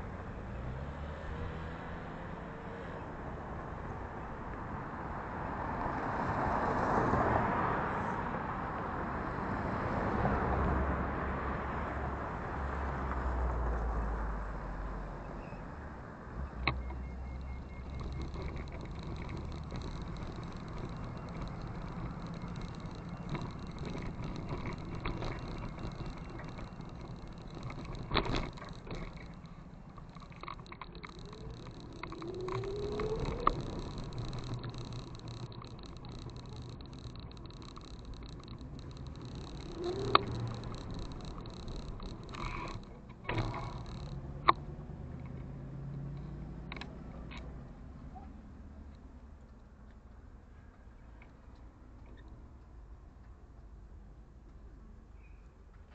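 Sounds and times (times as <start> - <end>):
sharp clicks: 16.6 - 47.5
motorcycle engine idling: 16.7 - 44.2.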